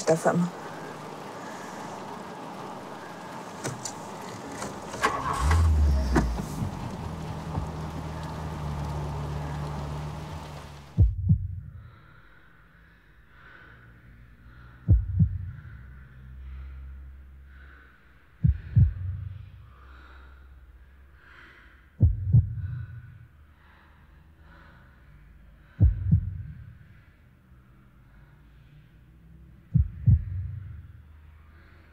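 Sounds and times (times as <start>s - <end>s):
car cabin rumble: 2.0s - 11.5s
slow heartbeat: 10.9s - 11.9s, 14.8s - 15.8s, 18.4s - 19.6s, 22.0s - 23.2s, 25.6s - 26.9s, 29.7s - 30.9s.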